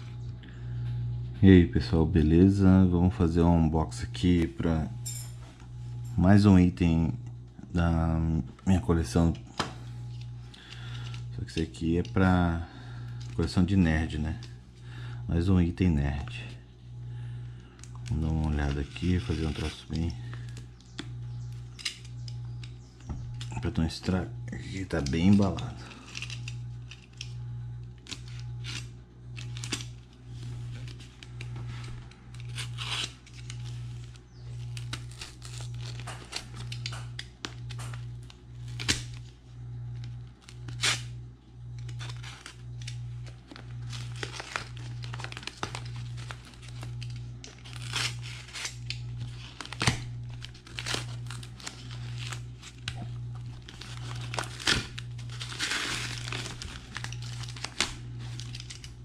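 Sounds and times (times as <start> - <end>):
low pulsing hum: 0.0 - 59.0
paper crinkling and tearing: 18.0 - 20.7, 27.9 - 59.0
utility knife cutting tape: 32.3 - 33.6, 46.6 - 53.1.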